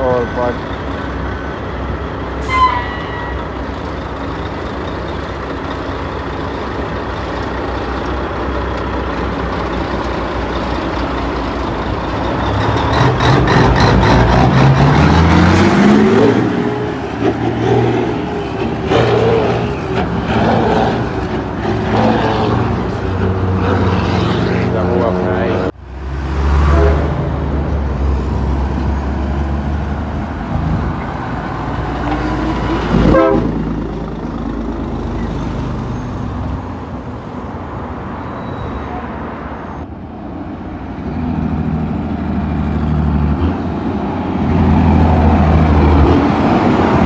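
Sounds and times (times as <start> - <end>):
truck diesel engine revving: 4.0 - 36.7.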